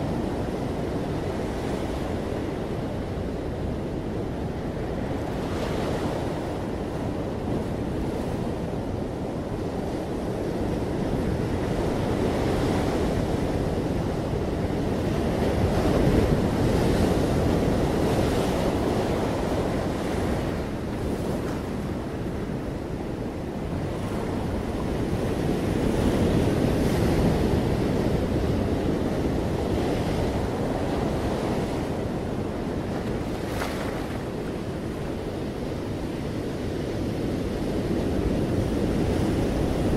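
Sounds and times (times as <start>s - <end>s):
ocean surf breaking on rocks: 10.1s - 39.9s.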